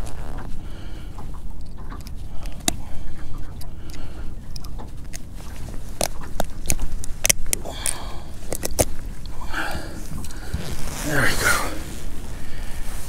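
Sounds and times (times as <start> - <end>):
metal pliers clicking and snapping: 6.0 - 9.0.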